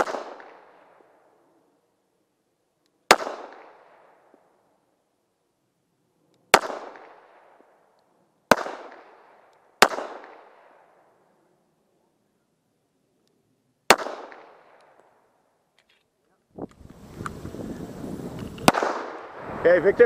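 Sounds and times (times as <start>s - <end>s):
pistol shots: 0.0s - 1.2s, 3.0s - 4.2s, 6.5s - 7.7s, 8.4s - 11.0s, 13.8s - 15.1s, 18.6s - 19.4s.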